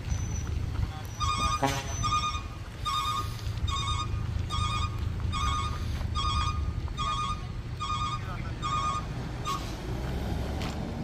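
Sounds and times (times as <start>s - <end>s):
low engine rumble: 0.0s - 11.0s.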